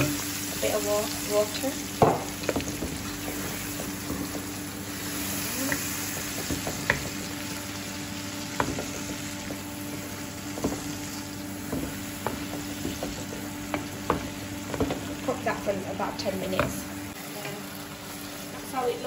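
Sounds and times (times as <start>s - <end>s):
onions sizzling in a frying pan: 0.0s - 19.0s
wooden spoon tapping and scraping pan: 5.6s - 7.2s, 8.5s - 11.0s, 11.6s - 15.1s.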